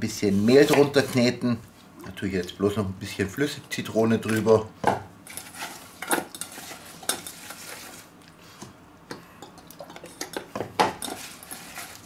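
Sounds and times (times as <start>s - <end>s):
apple slices scraping metal bowl: 0.4s - 1.4s, 11.0s - 12.0s.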